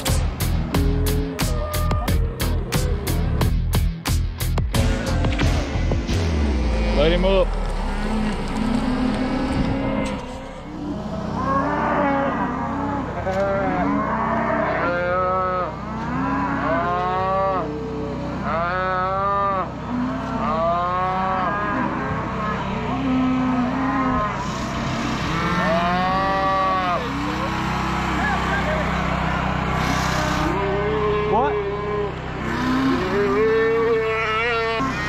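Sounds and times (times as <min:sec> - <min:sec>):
steady low hum: 0:04.7 - 0:35.0
calves bawling: 0:07.5 - 0:35.0.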